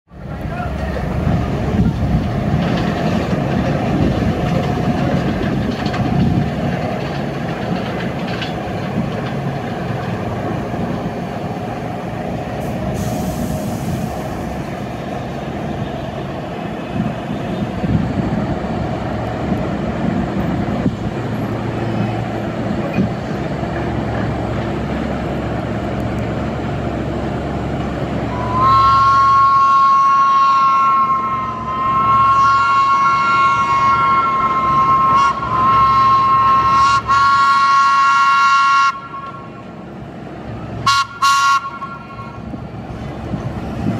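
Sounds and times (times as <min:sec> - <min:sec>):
subway trains rumbling: 0:00.1 - 0:43.9
two-tone train horn: 0:28.3 - 0:39.5, 0:40.8 - 0:42.4.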